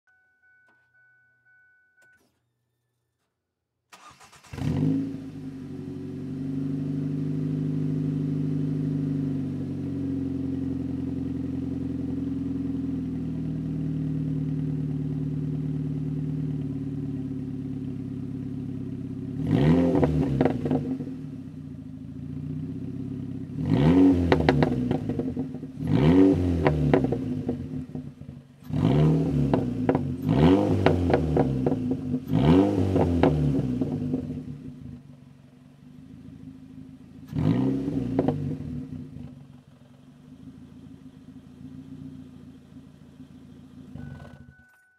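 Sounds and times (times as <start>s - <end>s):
car engine idling: 3.9s - 44.6s
engine throttle blips: 23.4s - 44.9s.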